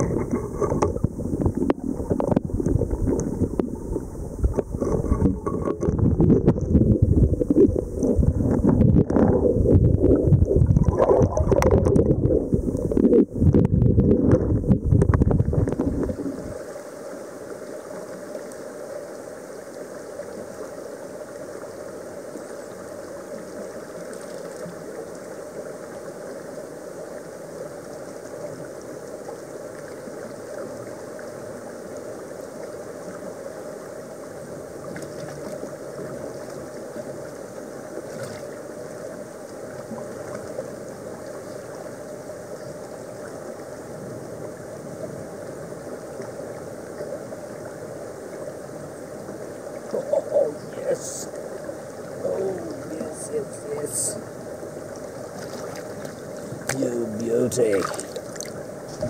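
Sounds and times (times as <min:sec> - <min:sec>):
underwater knocks: 0:00.0 - 0:16.2
muffled underwater rumbling: 0:00.0 - 0:16.8
creek water flowing: 0:00.0 - 0:59.0.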